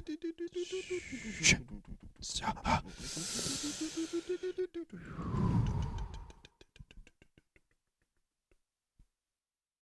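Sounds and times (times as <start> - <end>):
pulsing rising tone: 3.7 - 6.4
low rumble: 5.0 - 6.3.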